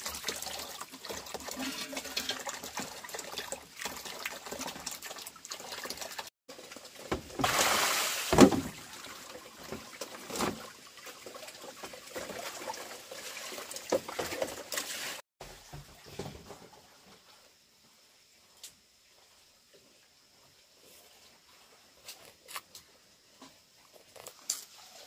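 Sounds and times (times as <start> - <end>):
rush of water: 0.0 - 6.3, 7.0 - 15.2
water sloshing and trickling: 0.0 - 17.6, 18.8 - 25.0
container handling knocks: 8.3 - 8.8.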